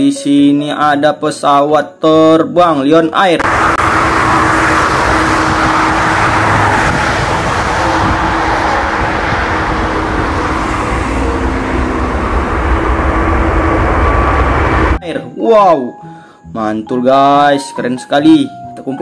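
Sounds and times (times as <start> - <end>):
jet engines at takeoff: 3.4 - 15.0.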